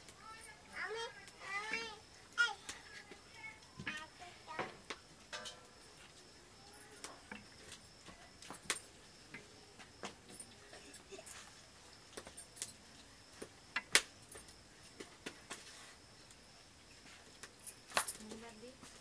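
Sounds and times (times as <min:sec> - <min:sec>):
steel plates and utensils clinking: 0:05.3 - 0:05.8.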